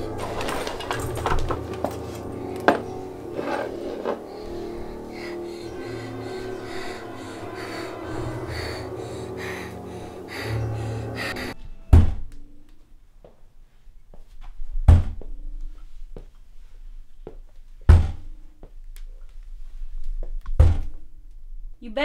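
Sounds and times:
suspense music with pulsing beat: 0.0 - 12.8.

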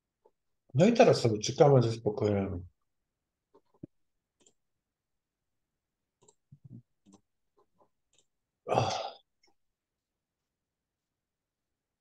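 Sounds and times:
breathy vocal sound: 8.7 - 9.3.

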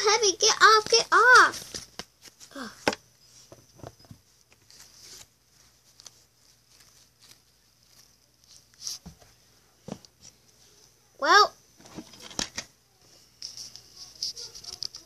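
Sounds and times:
plastic toy being handled: 0.5 - 11.0, 11.8 - 15.0
child vocal sound: 2.5 - 2.9.

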